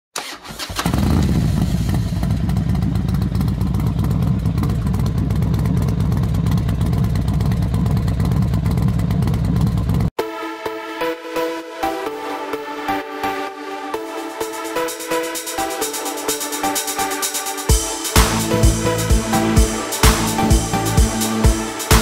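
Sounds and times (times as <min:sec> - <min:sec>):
pulsing engine-like rumble: 0:01.1 - 0:10.1
electronic music: 0:10.2 - 0:22.0.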